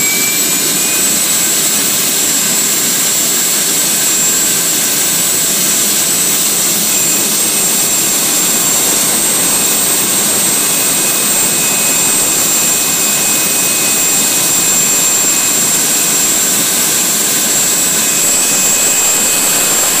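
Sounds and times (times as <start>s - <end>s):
gas turbine running with whine: 0.0s - 20.0s.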